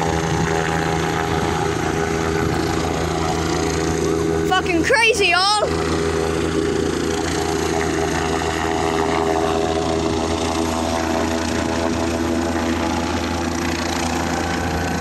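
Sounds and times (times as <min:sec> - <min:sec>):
helicopter flying overhead: 0:00.0 - 0:15.0.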